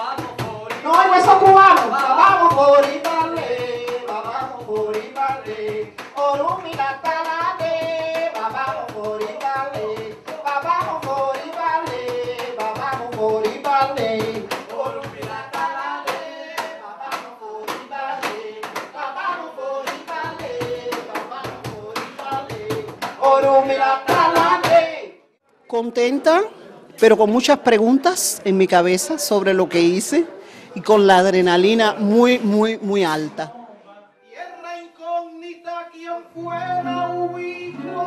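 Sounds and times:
woman singing: 0:00.0 - 0:18.8
cajon slaps: 0:00.0 - 0:25.0.

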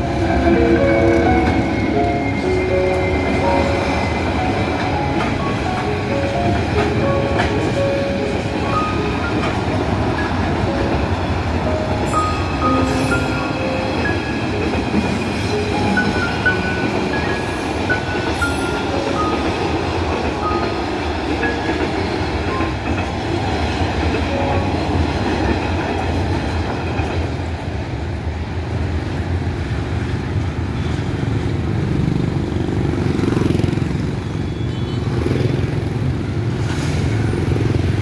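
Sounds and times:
train wheels rolling on rails: 0:00.0 - 0:38.0
motorbike and car engines: 0:31.4 - 0:34.5.

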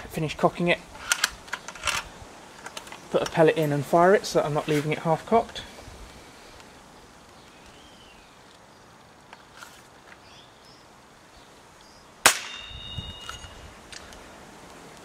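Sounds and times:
air rifle shot crack: 0:12.2 - 0:13.0
ringing tone: 0:12.5 - 0:13.6.

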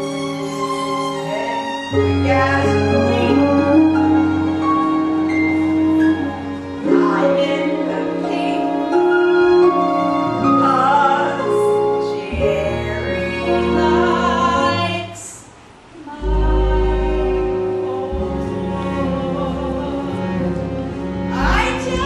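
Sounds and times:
instrumental accompaniment: 0:00.0 - 0:15.1, 0:16.0 - 0:22.0
person singing: 0:16.0 - 0:22.0
low bass note: 0:16.2 - 0:19.7.

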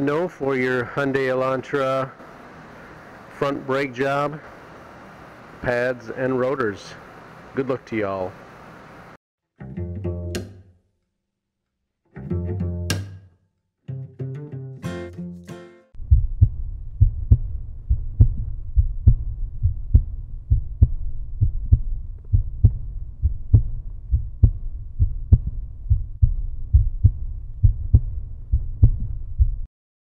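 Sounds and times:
low double thumps: 0:16.0 - 0:29.7.

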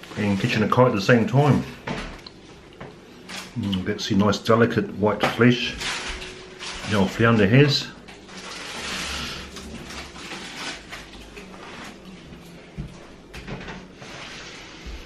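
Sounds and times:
faint rustling and handling: 0:05.4 - 0:13.3.

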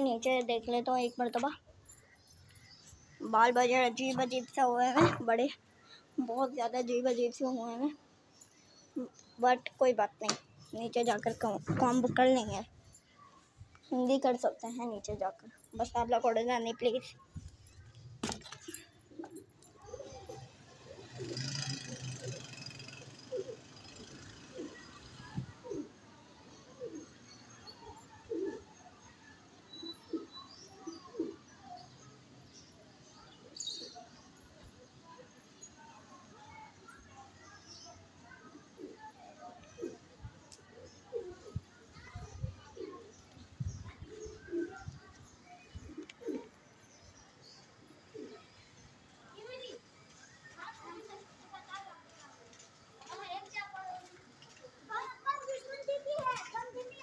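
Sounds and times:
pigeons cooing: 0:18.7 - 0:29.1, 0:29.9 - 0:31.9, 0:38.4 - 0:43.4, 0:44.0 - 0:48.7.

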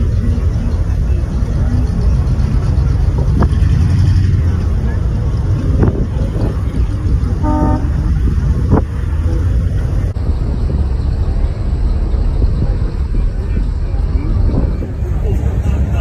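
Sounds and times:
cars rumbling past slowly: 0:00.0 - 0:16.0
short car horn toot: 0:07.4 - 0:08.0.

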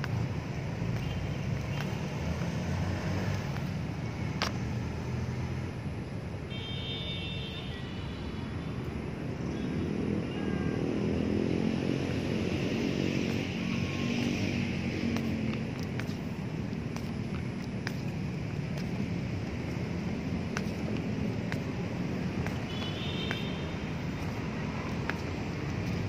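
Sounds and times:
low rumble of passing vehicles: 0:00.0 - 0:06.8, 0:07.4 - 0:26.0
vehicle engine passing: 0:10.8 - 0:22.7.

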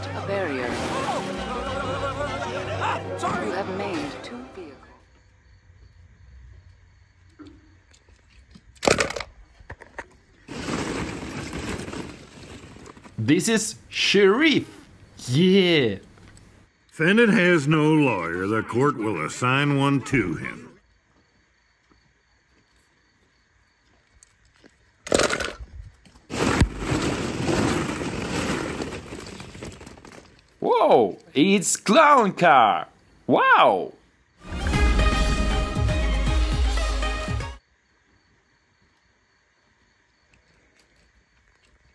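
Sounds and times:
plastic balls clattering: 0:08.8 - 0:09.9, 0:10.5 - 0:13.2, 0:25.1 - 0:25.6, 0:26.3 - 0:30.6.

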